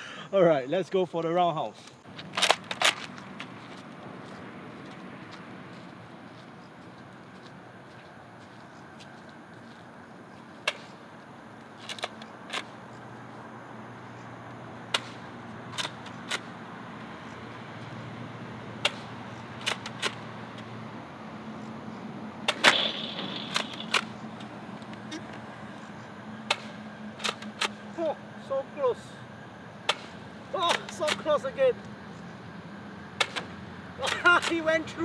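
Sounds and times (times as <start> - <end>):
low traffic hum: 0.0 - 35.0
balls striking target: 10.6 - 11.0, 14.9 - 16.1, 18.8 - 20.3, 22.4 - 25.1, 26.4 - 27.8, 29.8 - 31.2, 33.2 - 33.5
toy blaster firing clacks: 22.5 - 24.1.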